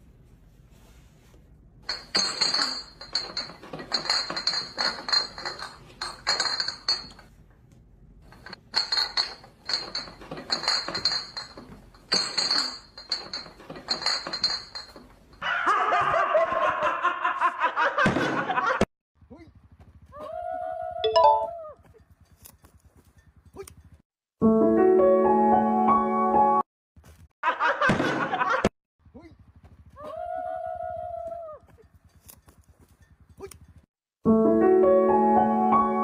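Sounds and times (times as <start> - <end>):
rapid dense clinking: 1.8 - 7.4, 8.2 - 15.4.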